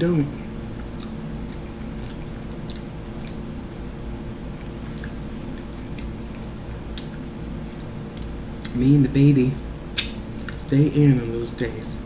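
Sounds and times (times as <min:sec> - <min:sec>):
steady low hum: 0:00.0 - 0:12.0
person chewing food: 0:00.7 - 0:07.4, 0:08.0 - 0:08.8, 0:10.0 - 0:10.6
wet mouth clicks: 0:00.8 - 0:04.0, 0:04.6 - 0:07.2, 0:09.9 - 0:10.6.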